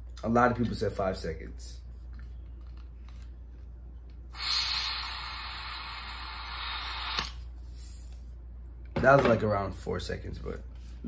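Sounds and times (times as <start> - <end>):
gas hissing from can: 4.3 - 7.4.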